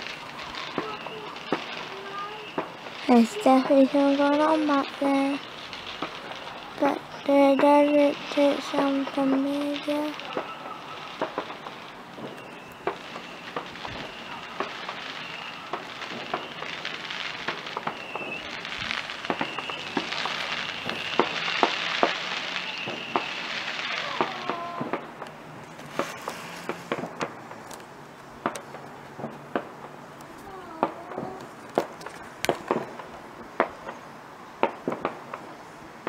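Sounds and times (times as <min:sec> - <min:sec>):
distant fireworks bangs and pops: 0:00.0 - 0:36.0
fireworks crackling hiss: 0:00.0 - 0:36.0.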